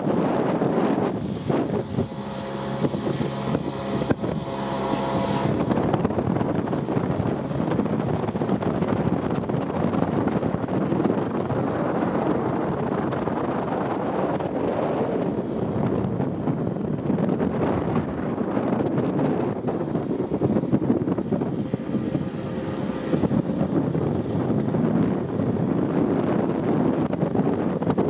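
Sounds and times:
motorboat engine hum: 0:00.0 - 0:28.0
wind buffeting microphone: 0:00.0 - 0:28.0.

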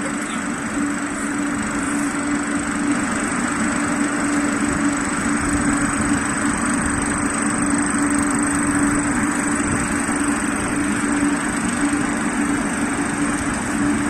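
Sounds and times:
dryer machine motor humming: 0:00.0 - 0:14.0.

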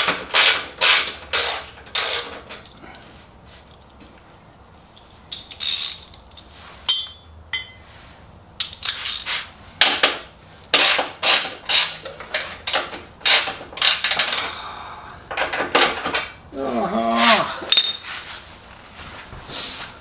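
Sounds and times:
ratchet wrench ratcheting: 0:00.3 - 0:02.4, 0:05.3 - 0:06.4, 0:10.8 - 0:14.5.

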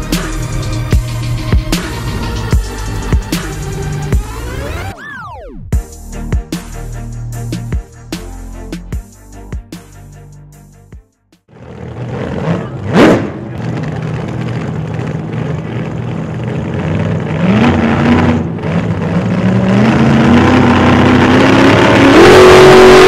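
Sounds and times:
car engine accelerating: 0:00.0 - 0:05.7, 0:11.5 - 0:23.0
sharp rising sweep: 0:00.0 - 0:05.8.

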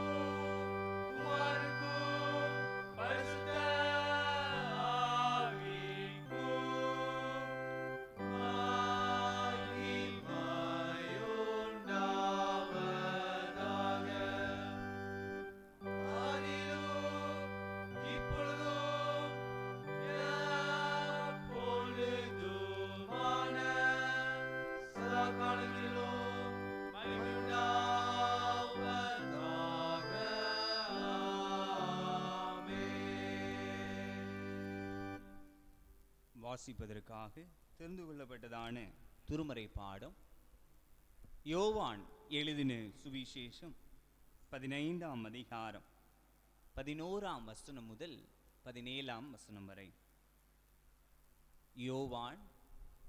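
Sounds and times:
sustained keyboard chords: 0:00.0 - 0:35.7
voices singing in church: 0:00.0 - 0:35.7.

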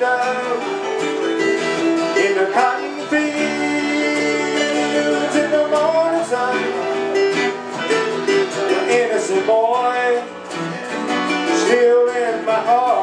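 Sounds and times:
man singing: 0:00.0 - 0:10.6, 0:11.2 - 0:13.0
acoustic guitars strummed: 0:00.0 - 0:13.0
electric keyboard: 0:00.0 - 0:13.0.

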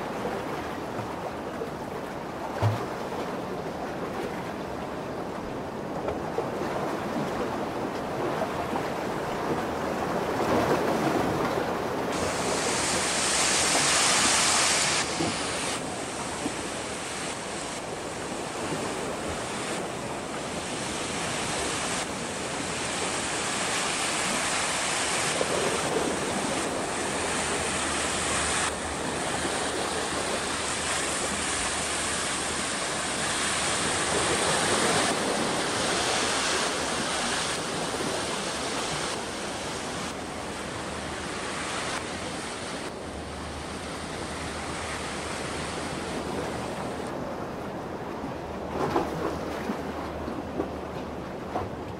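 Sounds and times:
surf washing in: 0:00.0 - 0:51.9
wind rumbling on microphone: 0:00.0 - 0:51.9.

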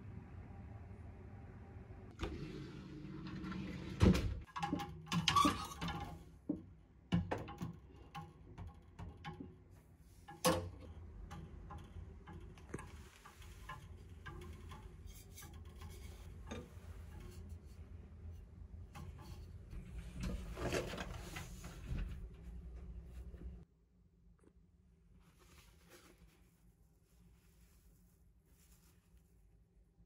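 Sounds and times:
clicks and knocks of wooden fittings: 0:04.5 - 0:17.8.

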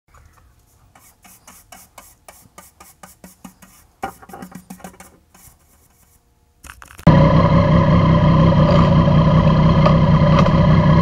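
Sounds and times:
brush scrubbing wooden workbench: 0:00.5 - 0:06.2.

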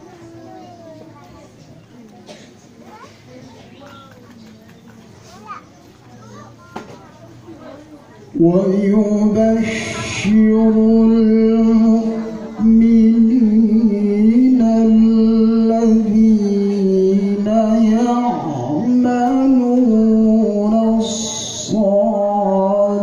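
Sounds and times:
man reciting melodically into microphone: 0:08.3 - 0:23.0.

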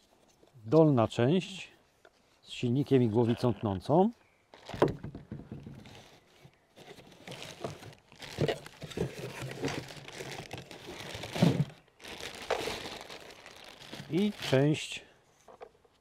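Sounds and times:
plastic bag crinkling: 0:04.5 - 0:04.9, 0:06.8 - 0:15.0
cardboard rustling: 0:04.6 - 0:14.8.

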